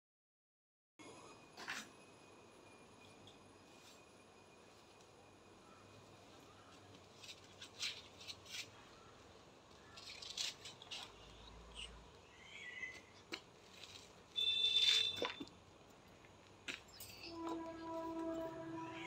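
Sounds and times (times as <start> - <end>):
birds chirping: 8.0 - 13.3.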